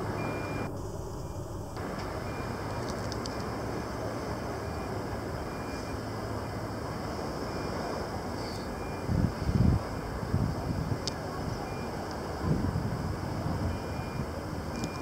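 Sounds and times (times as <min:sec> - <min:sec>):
outdoor rushing noise: 0:00.0 - 0:11.3
low hum: 0:00.0 - 0:11.6.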